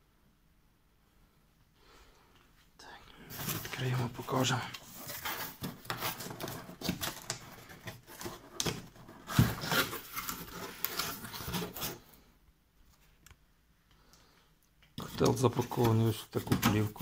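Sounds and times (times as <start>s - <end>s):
cardboard box being opened: 4.8s - 12.0s.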